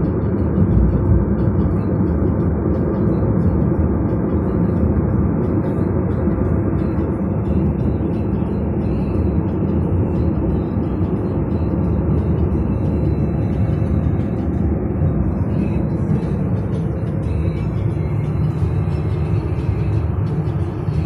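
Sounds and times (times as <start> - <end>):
car road and engine noise: 0.0 - 21.0
music playing: 0.0 - 21.0.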